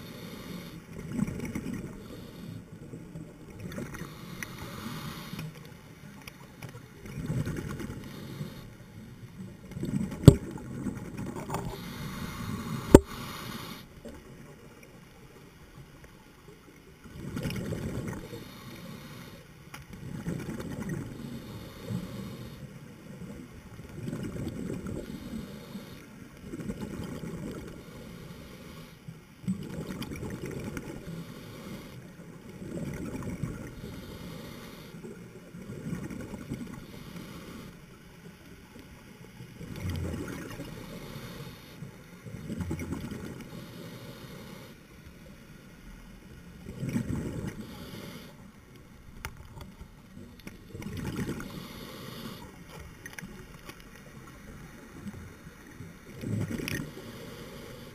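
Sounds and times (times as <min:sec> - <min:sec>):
underwater exhaled air bubbling: 0:06.9 - 0:14.9, 0:17.0 - 0:19.4, 0:20.0 - 0:37.8, 0:39.4 - 0:44.8, 0:46.4 - 0:48.5, 0:49.5 - 0:57.9.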